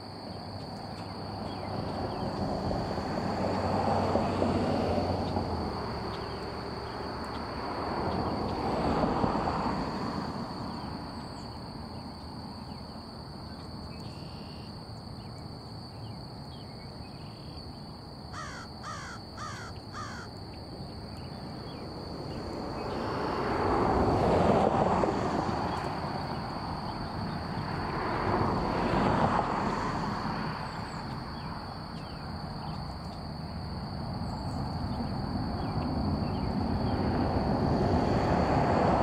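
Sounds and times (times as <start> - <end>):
crow cawing: 18.3 - 20.3.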